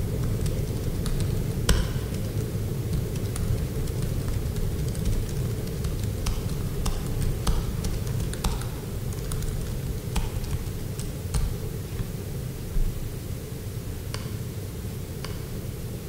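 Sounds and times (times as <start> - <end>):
low room hum: 0.0 - 16.0
keyboard keys clicking: 0.2 - 11.5.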